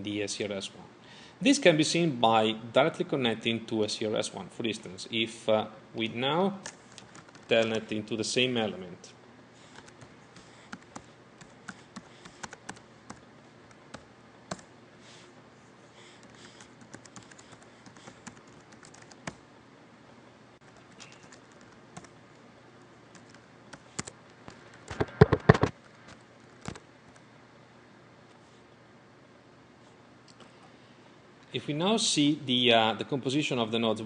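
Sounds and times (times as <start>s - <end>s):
computer keyboard typing: 6.6s - 7.9s, 9.7s - 14.7s, 16.2s - 19.4s, 20.6s - 22.2s, 23.1s - 25.7s, 26.5s - 26.8s.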